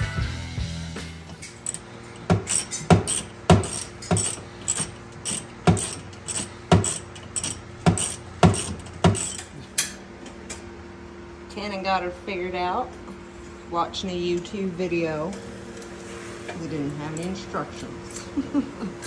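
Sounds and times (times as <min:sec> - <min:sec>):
socket ratchet clicking: 0:01.6 - 0:09.5.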